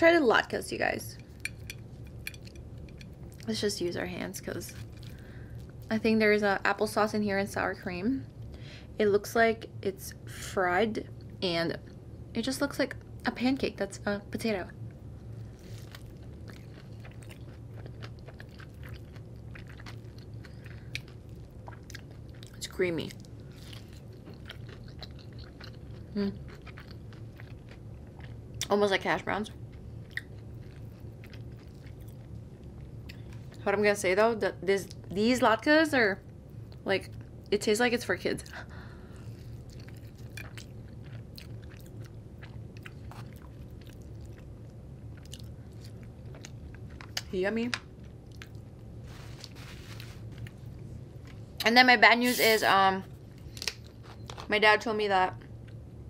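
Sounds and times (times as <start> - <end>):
low steady hum: 0.0 - 56.0
chewing with wet crunches: 15.6 - 28.7, 29.6 - 33.6, 39.2 - 49.6.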